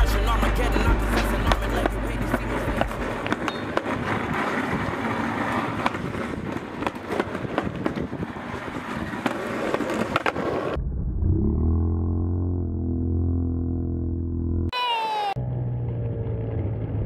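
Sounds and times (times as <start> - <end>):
skateboard wheels rolling on concrete: 0.0 - 10.8
wheels clicking over joints: 0.2 - 10.7.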